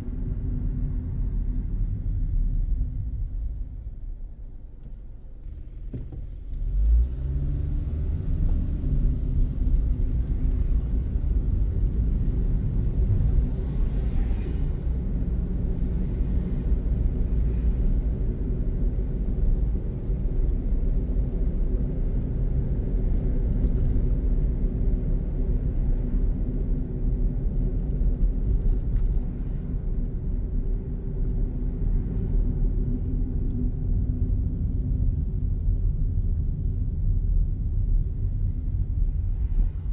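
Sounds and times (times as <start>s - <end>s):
road rumble: 0.0s - 39.9s
car engine: 4.8s - 35.0s.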